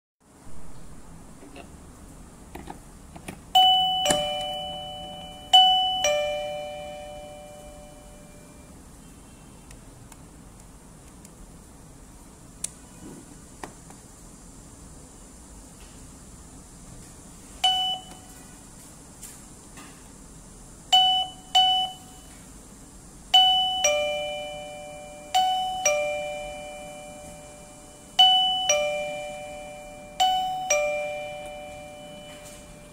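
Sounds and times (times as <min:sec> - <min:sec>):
two-tone door chime: 0:03.6 - 0:08.8, 0:17.6 - 0:18.4, 0:20.9 - 0:22.4, 0:23.3 - 0:32.9
short single chime tones: 0:28.7 - 0:32.9.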